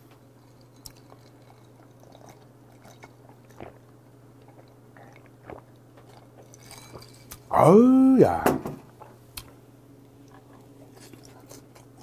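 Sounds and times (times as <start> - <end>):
steady low hum: 0.0 - 12.0
man gulping a drink: 0.8 - 6.6.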